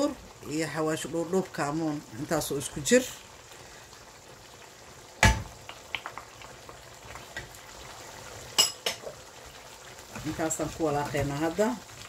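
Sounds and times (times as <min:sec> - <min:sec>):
liquid bubbling in a wok: 0:02.8 - 0:12.0.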